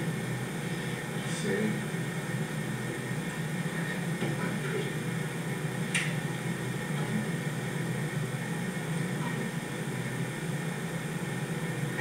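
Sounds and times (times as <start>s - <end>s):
low hum with hiss: 0.0s - 12.0s
sharp click: 5.9s - 6.2s.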